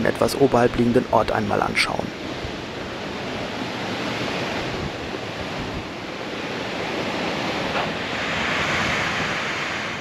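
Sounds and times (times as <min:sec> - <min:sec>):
sea surf: 0:00.0 - 0:10.0
wind on microphone: 0:02.1 - 0:10.0.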